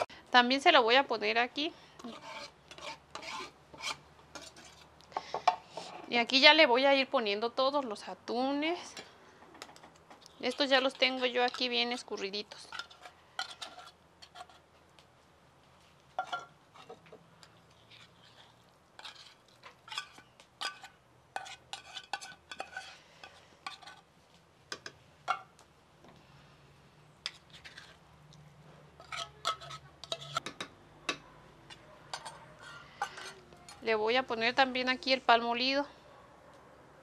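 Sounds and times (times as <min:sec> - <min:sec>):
spoon scraping tin can: 0:02.0 - 0:04.9, 0:10.2 - 0:14.6, 0:17.8 - 0:24.0, 0:27.2 - 0:28.0, 0:29.0 - 0:30.5, 0:31.7 - 0:33.9.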